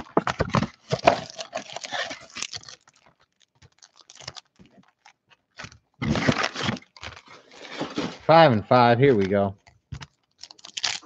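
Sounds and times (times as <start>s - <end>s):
cardboard box tearing: 0.0s - 2.7s, 6.0s - 8.3s
foil packs crinkling: 0.0s - 11.0s.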